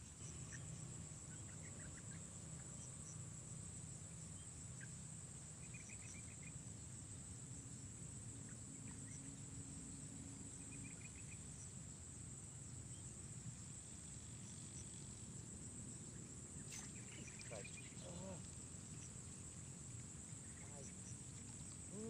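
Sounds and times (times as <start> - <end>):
bird chirps: 16.6 - 18.4
twittering bird trills: 16.7 - 18.5.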